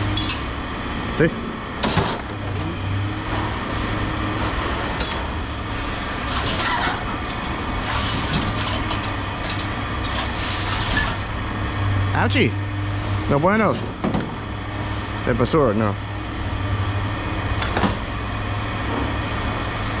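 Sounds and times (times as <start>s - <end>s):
scrap metal clinking and rattling: 6.3s - 11.2s.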